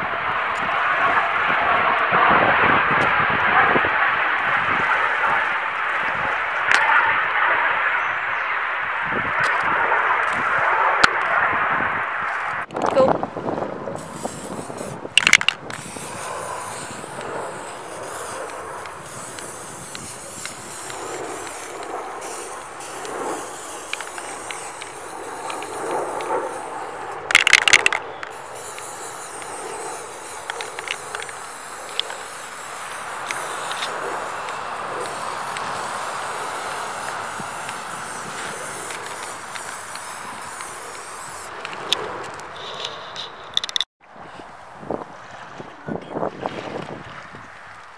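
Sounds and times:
outdoor noise: 0:00.0 - 0:47.9
spray paint can hissing: 0:13.9 - 0:43.9
loud bursts of noise: 0:14.0 - 0:43.9.

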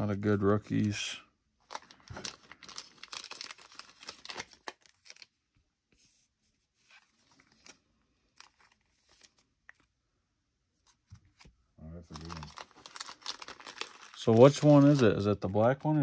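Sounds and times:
cards rustling and tapping: 0:10.8 - 0:16.0.

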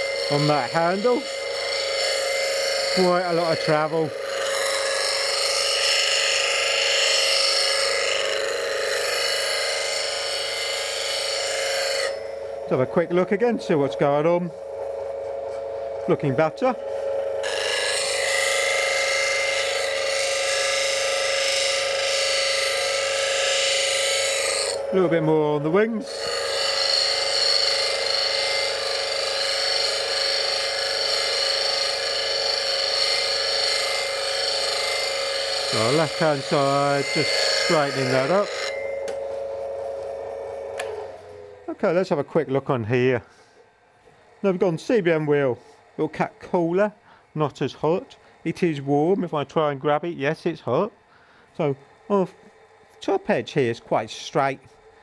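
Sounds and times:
gouge grinding with a hiss: 0:00.0 - 0:12.3, 0:16.8 - 0:24.9, 0:26.1 - 0:40.7
bench grinder humming: 0:00.0 - 0:55.0.

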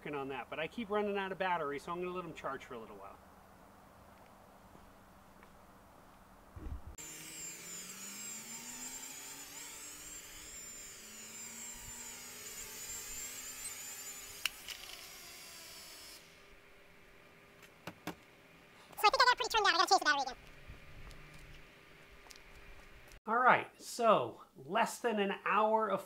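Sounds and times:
quadcopter motors whining: 0:07.0 - 0:16.4.

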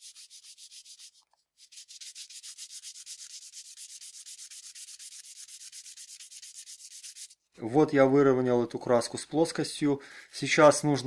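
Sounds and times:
sandpaper rubbing by hand: 0:00.0 - 0:07.4.

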